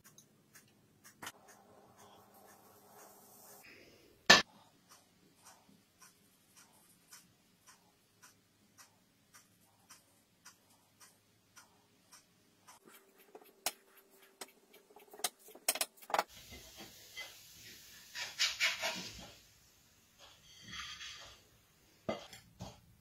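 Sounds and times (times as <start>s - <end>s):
steady regular ticking: 4.5s - 16.2s.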